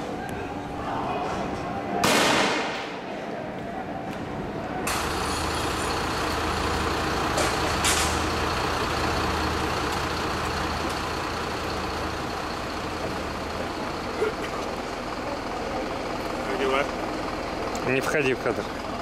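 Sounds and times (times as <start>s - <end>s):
street clash din: 2.0s - 3.0s
low engine hum: 4.4s - 19.0s
sharp metallic clanks: 7.3s - 8.3s.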